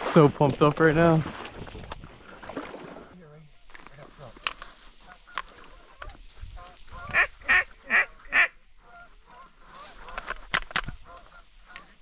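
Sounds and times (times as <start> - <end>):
goose honking: 4.6 - 12.0.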